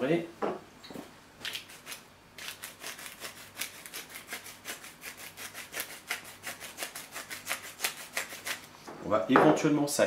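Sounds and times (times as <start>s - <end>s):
pepper mill grinding: 1.4s - 8.7s.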